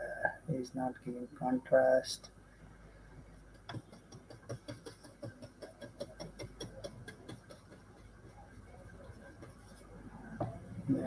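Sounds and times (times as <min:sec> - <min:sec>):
paintbrush tapping on paper: 0:03.5 - 0:10.6.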